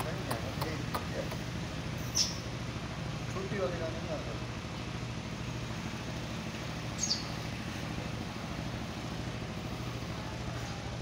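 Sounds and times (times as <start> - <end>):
high falling chirp: 6.9 - 7.5.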